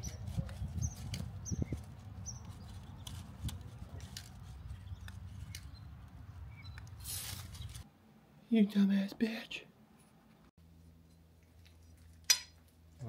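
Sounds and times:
hands handling small objects: 0.2s - 5.7s.

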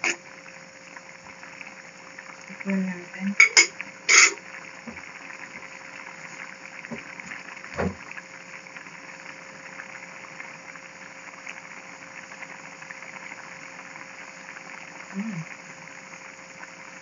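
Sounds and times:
broth boiling in a pot: 0.0s - 17.0s
faint steady hum: 0.0s - 17.0s.

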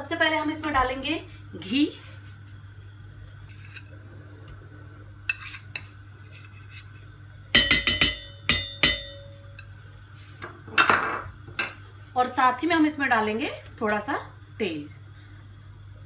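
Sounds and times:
metal spoon scraping pot: 3.5s - 3.9s, 5.3s - 7.0s.

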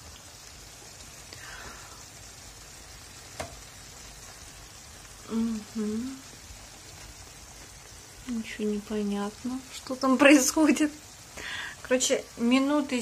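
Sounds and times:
meat sizzling in oven: 0.0s - 13.0s.

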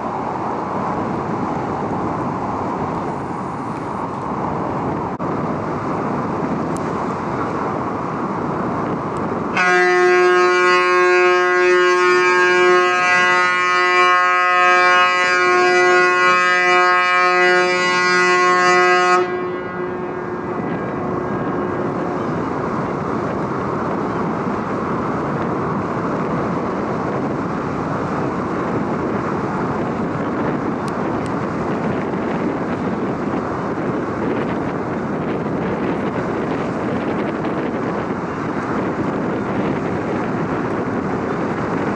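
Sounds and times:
wind rushing: 0.0s - 9.6s, 19.2s - 41.9s
ship's whistle long blast: 9.5s - 22.4s.

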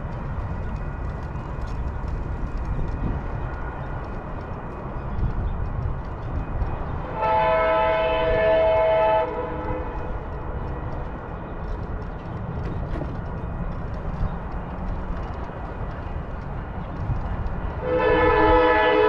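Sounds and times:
train horn: 7.1s - 10.2s, 17.8s - 19.0s.

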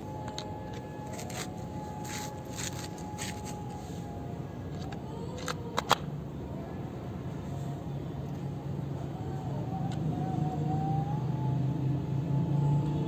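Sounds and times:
steady low background noise: 0.0s - 11.1s
plastic toy clicks and rattles: 4.7s - 6.1s.

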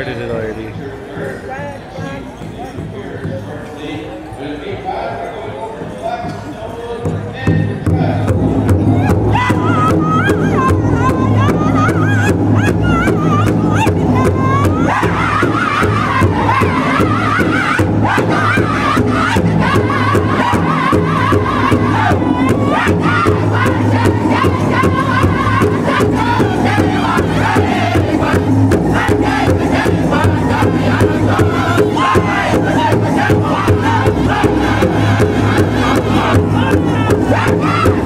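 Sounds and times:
large drum steady beat: 7.0s - 38.0s
women singing: 8.8s - 38.0s
group singing in high voices: 8.9s - 38.0s.

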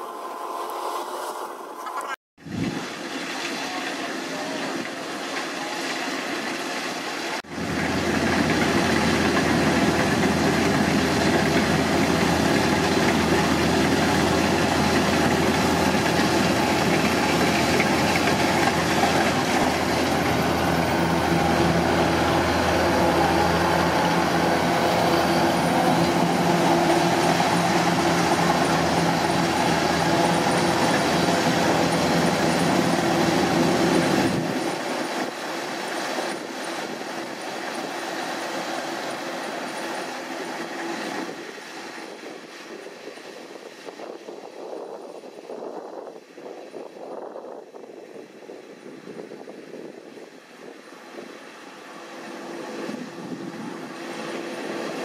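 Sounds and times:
diesel engine drone: 7.2s - 43.8s, 50.1s - 55.0s
harvester machinery clatter: 7.5s - 42.6s.

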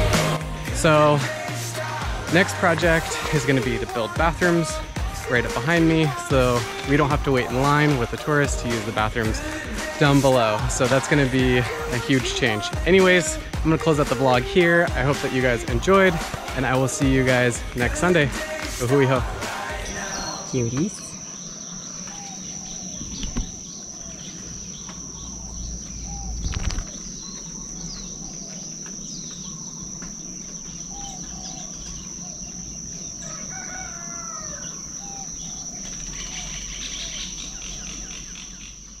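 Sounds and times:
high-pitched insect drone: 0.0s - 39.0s
rooster crowing: 32.5s - 37.2s.

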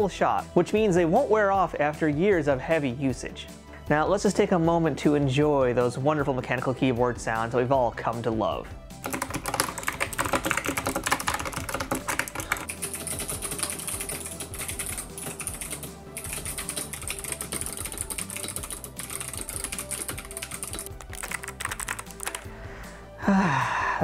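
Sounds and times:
mechanical keyboard typing: 9.0s - 22.5s.

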